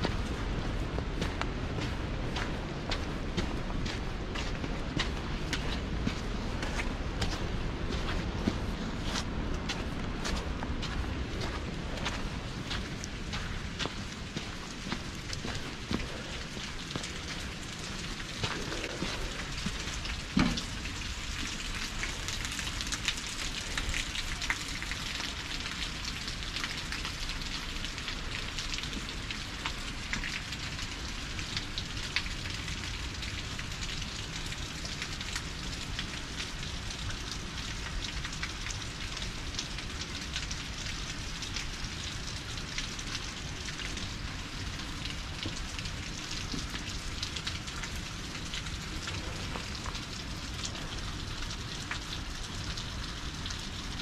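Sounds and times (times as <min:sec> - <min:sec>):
low steady rumble: 0:00.0 - 0:24.8
rain falling: 0:00.0 - 0:54.0.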